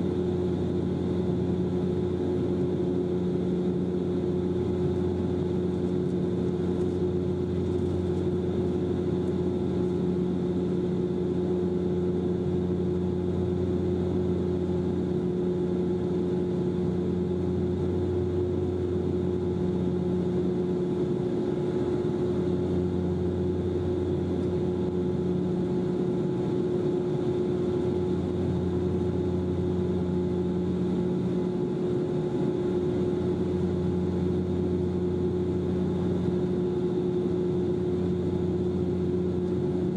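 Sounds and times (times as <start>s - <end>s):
turboprop engines droning in cabin: 0.0s - 39.9s.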